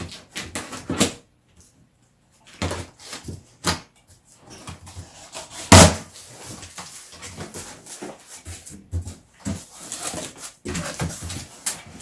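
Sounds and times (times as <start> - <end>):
cardboard handling: 2.5 - 12.0.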